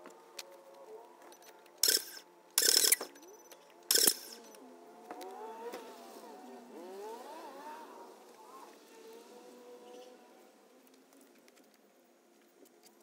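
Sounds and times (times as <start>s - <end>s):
harsh mechanical noise bursts: 1.8s - 3.2s, 3.9s - 4.6s.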